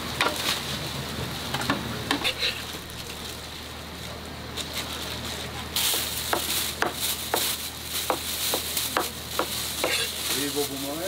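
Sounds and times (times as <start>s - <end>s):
knife chopping on plastic board: 6.3s - 10.1s.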